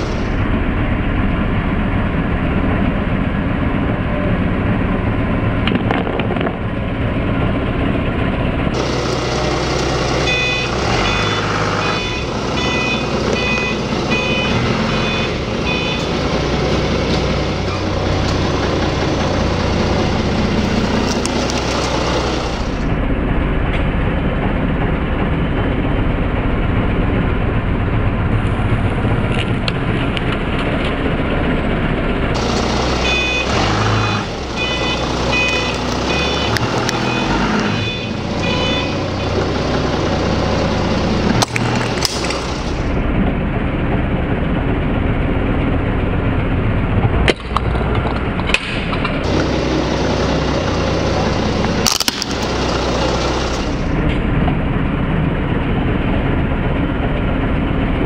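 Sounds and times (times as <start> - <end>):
forklift engine running: 0.0 - 58.0
reversing alarm beeps: 10.2 - 16.3, 33.0 - 39.4.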